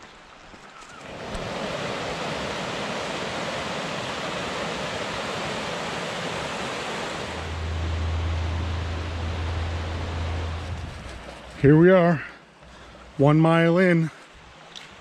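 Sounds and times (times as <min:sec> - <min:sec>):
water rushing over rocks: 0:00.9 - 0:11.2
low rumble: 0:07.2 - 0:11.8.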